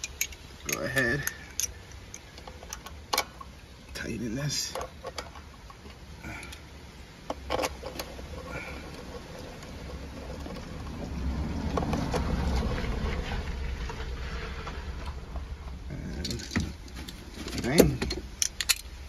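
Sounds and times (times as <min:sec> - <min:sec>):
low rumble: 0:08.3 - 0:16.9.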